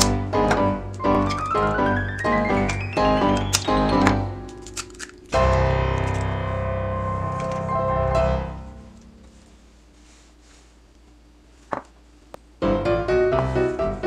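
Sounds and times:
instrumental piano music: 0:00.0 - 0:09.5, 0:12.6 - 0:14.0.

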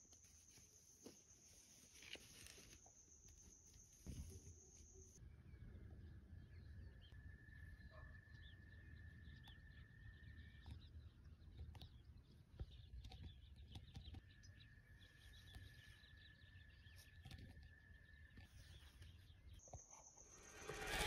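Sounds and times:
faint bird chirps: 0:00.0 - 0:21.0
low rumble: 0:20.1 - 0:21.0.

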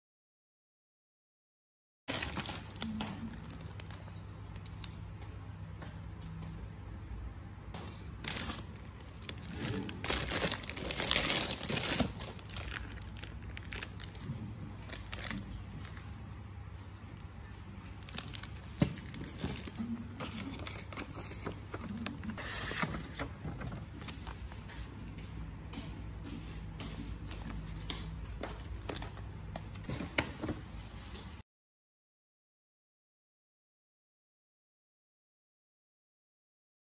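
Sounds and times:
plastic packaging crinkling: 0:02.1 - 0:05.0, 0:08.2 - 0:16.1, 0:18.0 - 0:24.6.

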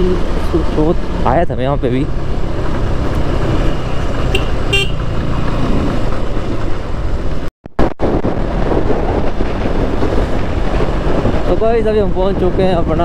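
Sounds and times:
motorcycle engine running: 0:00.0 - 0:07.3
wind and road noise: 0:00.0 - 0:13.0
vehicle horn: 0:04.3 - 0:05.1.

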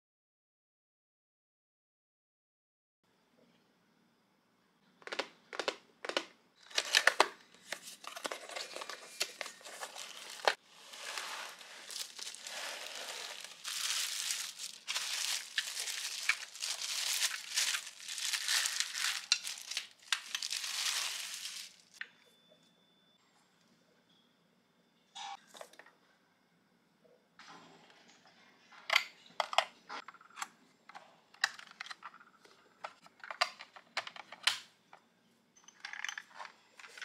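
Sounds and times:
plastic bag crinkling: 0:07.9 - 0:22.0.

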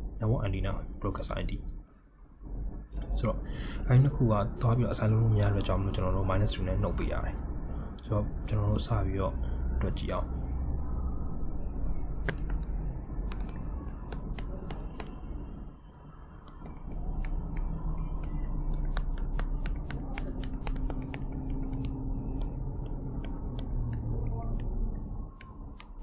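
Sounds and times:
steady low hum: 0:00.0 - 0:26.0
computer mouse clicking: 0:12.2 - 0:15.2, 0:16.4 - 0:26.0.

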